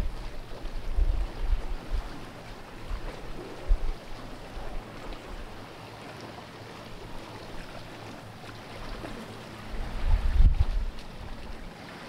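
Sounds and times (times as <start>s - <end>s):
wind buffeting microphone: 0.0s - 5.7s, 8.8s - 11.8s
sea water lapping against rocks: 0.0s - 12.0s.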